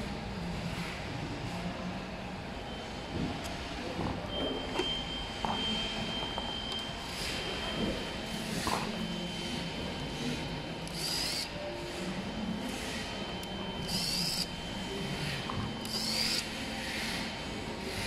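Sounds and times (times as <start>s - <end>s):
cordless drill motor whine: 10.8s - 11.5s, 13.8s - 14.6s, 15.8s - 16.6s.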